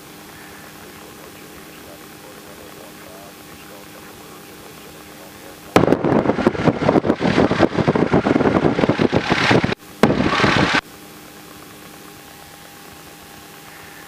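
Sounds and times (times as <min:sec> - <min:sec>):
faint engine hum: 0:00.0 - 0:14.0
crackly garbled radio transmission: 0:00.2 - 0:10.8.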